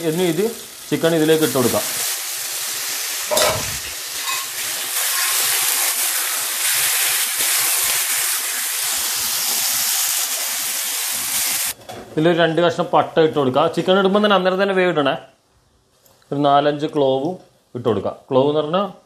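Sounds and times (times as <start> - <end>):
chicken sizzling in hot oil: 0.0 - 11.8.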